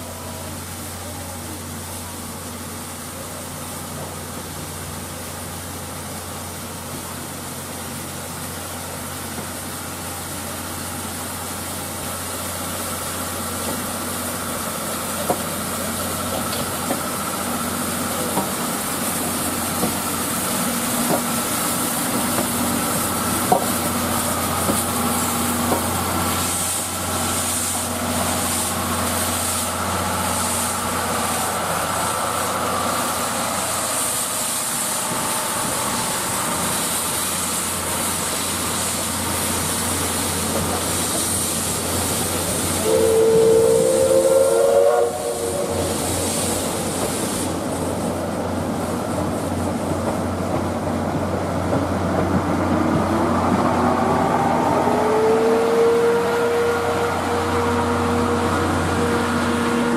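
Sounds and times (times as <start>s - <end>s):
steam hissing in bursts: 0.0s - 59.9s
steam locomotive passing: 0.0s - 59.9s.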